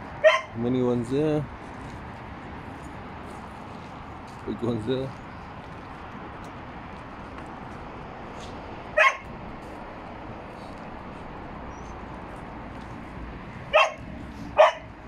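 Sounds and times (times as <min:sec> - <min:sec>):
steady background noise: 0:00.0 - 0:15.0
dog barking: 0:00.2 - 0:00.6, 0:09.0 - 0:09.3, 0:13.7 - 0:15.0.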